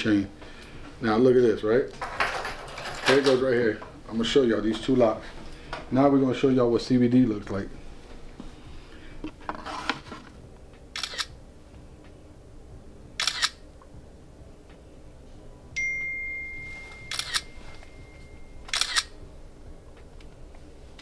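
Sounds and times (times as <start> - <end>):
camera shutter clicks: 11.0 - 11.3, 13.2 - 13.6, 17.1 - 17.5, 18.7 - 19.1
steady high tone: 15.4 - 19.7.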